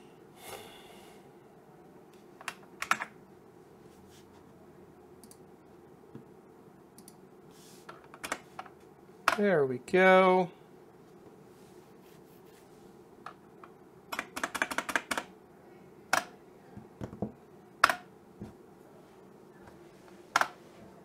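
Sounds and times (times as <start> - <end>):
computer keyboard keystrokes: 2.4 - 3.1, 14.1 - 15.3.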